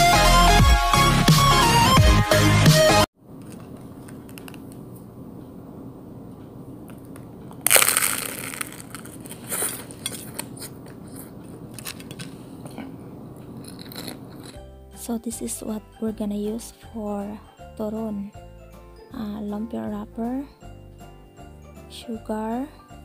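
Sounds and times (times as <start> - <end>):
crunchy chewing: 7.0 - 14.7
crunching bite into fried pastry: 7.6 - 14.6.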